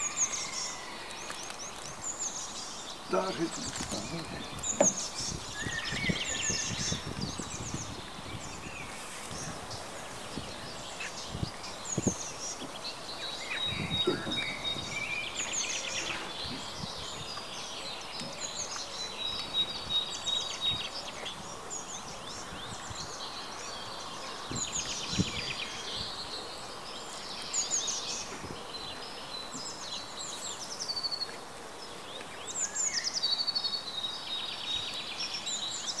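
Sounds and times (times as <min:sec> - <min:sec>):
small birds chirping: 0:00.0 - 0:36.0.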